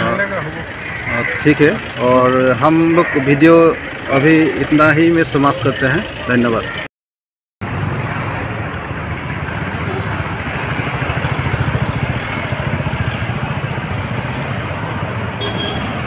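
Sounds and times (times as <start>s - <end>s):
street traffic: 0.0s - 6.9s, 7.6s - 16.0s
vehicle engine running: 0.0s - 6.9s.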